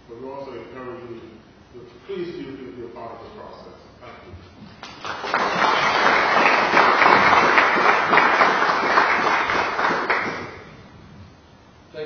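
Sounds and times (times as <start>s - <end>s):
audience applauding: 4.8s - 10.8s.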